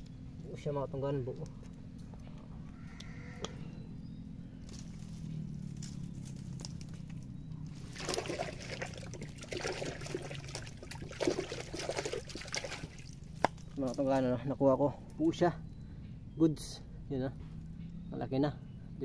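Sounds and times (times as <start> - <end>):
low hum: 0.0 - 19.0
mud and water squelching: 4.6 - 14.5.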